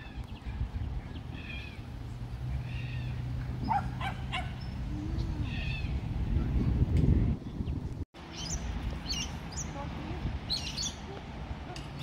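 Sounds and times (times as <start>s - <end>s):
distant dog barking: 3.6s - 4.7s.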